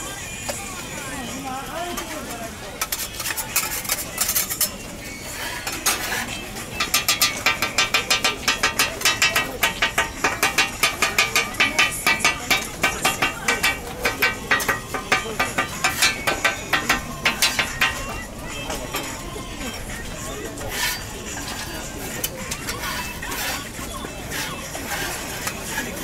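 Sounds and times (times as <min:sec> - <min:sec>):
metal spatula striking griddle: 0:06.8 - 0:19.2.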